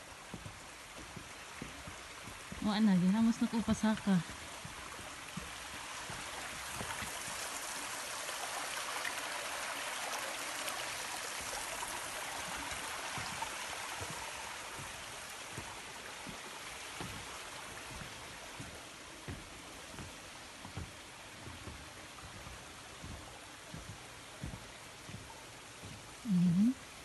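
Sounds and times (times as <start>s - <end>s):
stream rushing: 0.0s - 27.0s
soft low thumps: 0.2s - 7.1s, 12.5s - 27.0s.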